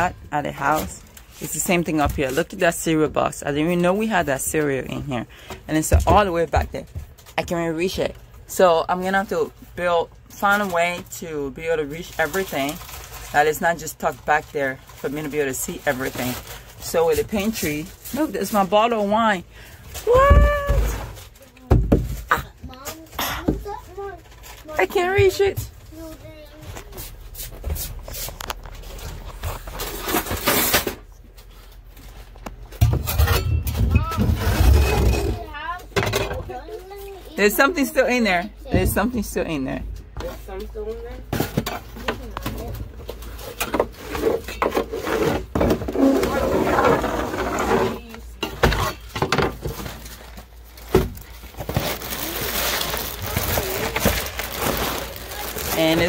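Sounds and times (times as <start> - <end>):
boxes knocking on a shelf: 20.2 - 22.4
metal utensil scraping on wood: 43.5 - 48.0
packaging rustling: 48.9 - 56.0.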